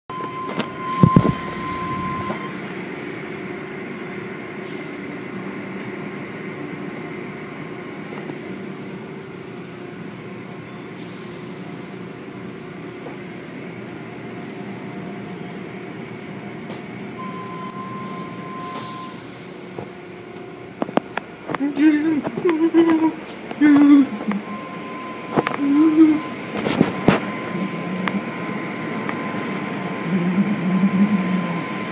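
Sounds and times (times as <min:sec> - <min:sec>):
car wash mechanical hum: 0:00.1 - 0:31.9
thin high squeal: 0:00.4 - 0:02.5
heavy thumps: 0:00.9 - 0:02.4.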